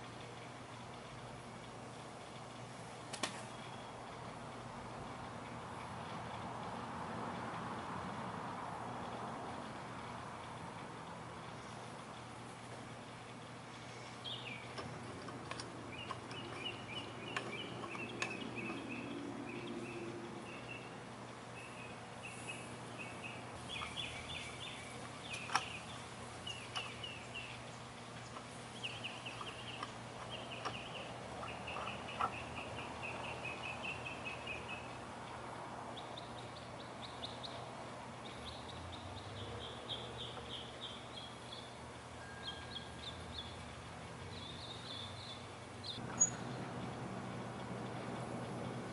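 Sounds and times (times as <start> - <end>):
small birds chirping: 3.4 - 4.4, 11.4 - 48.9.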